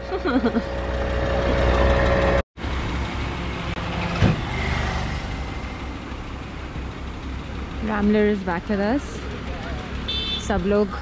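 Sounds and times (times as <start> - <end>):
van engine idling: 5.3 - 10.3.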